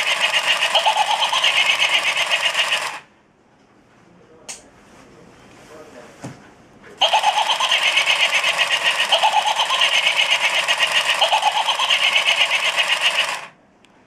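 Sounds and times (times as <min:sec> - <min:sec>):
toy electronic pulsing buzz: 0:00.0 - 0:03.0, 0:07.0 - 0:13.5
short rising electronic tones: 0:07.0 - 0:13.4.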